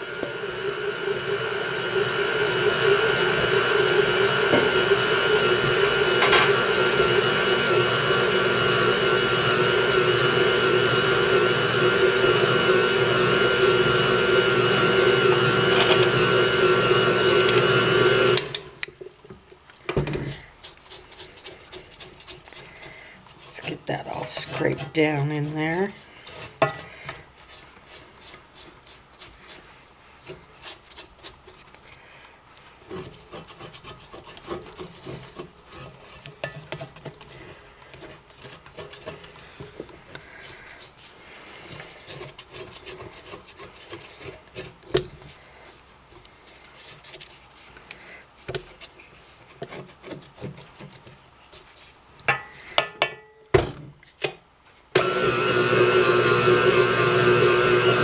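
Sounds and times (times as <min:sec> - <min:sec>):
stand mixer whirring: 0:00.0 - 0:18.7, 0:55.0 - 0:58.0
spatula scraping metal bowl: 0:20.2 - 0:32.0, 0:32.8 - 0:52.8.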